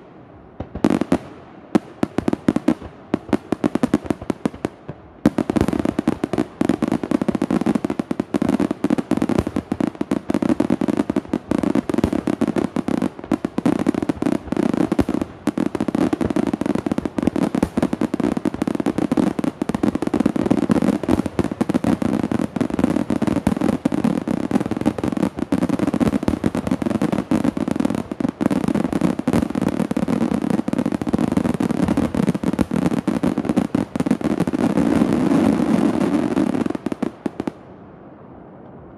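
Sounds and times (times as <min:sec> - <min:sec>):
fireworks crackle: 0:00.0 - 0:37.6.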